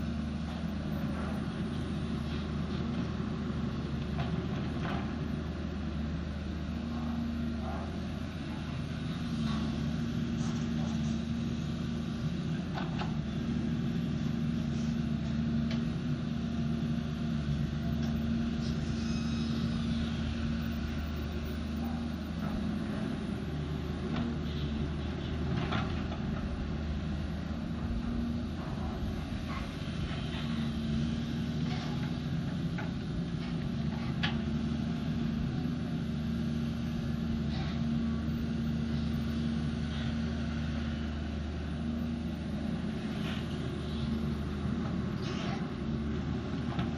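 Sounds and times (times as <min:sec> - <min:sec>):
excavator diesel engine running: 0:00.0 - 0:46.9.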